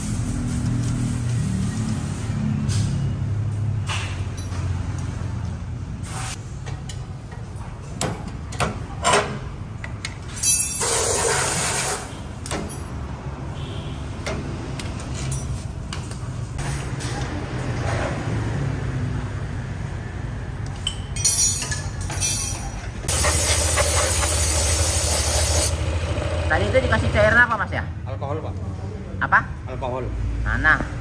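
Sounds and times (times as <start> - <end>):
metal tool clicks and clinks: 4.1 - 5.1, 9.8 - 11.0, 20.6 - 22.9
loud rushing hiss: 23.1 - 26.5.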